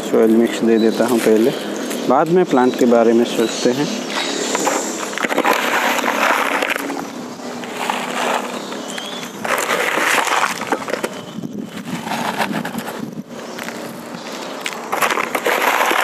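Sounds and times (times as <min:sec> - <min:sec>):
gritty soil pouring into pot: 0:04.2 - 0:07.0, 0:07.6 - 0:08.6, 0:09.4 - 0:11.0, 0:11.6 - 0:12.9, 0:14.9 - 0:16.0.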